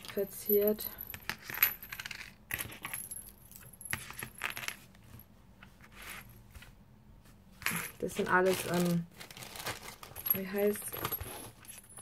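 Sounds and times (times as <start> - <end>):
keychains clinking on table: 0.0 - 4.8, 10.1 - 12.0.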